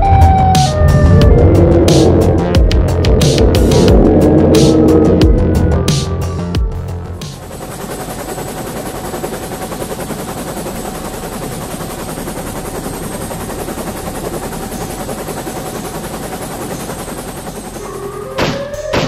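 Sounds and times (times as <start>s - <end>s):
helicopter rotor chopping: 0.2s - 19.0s.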